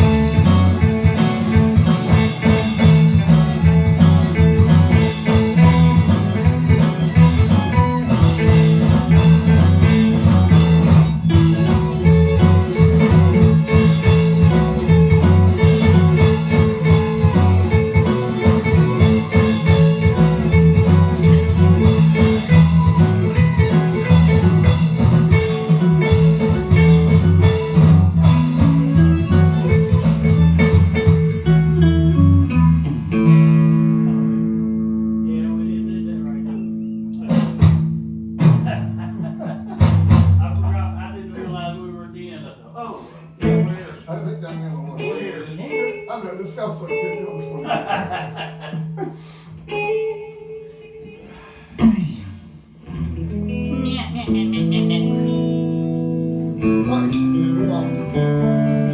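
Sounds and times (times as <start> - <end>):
fiddle: 0.0 - 31.9
drum-kit beat: 0.0 - 32.5, 36.6 - 41.9, 43.4 - 43.9, 46.9 - 50.2, 51.8 - 58.9
acoustic and electric guitars: 0.0 - 58.9
bass: 0.0 - 58.9.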